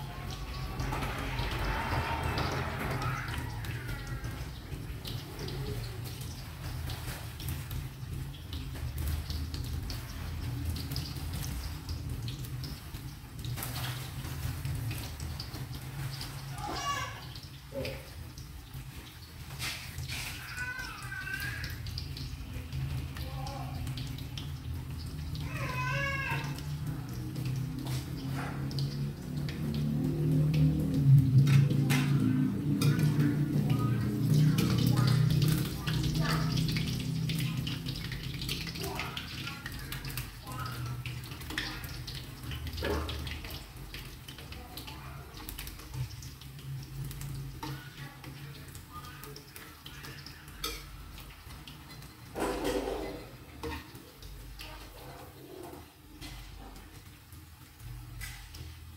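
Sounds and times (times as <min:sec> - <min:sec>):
metal ladle scraping a wok: 0:00.4 - 0:03.7.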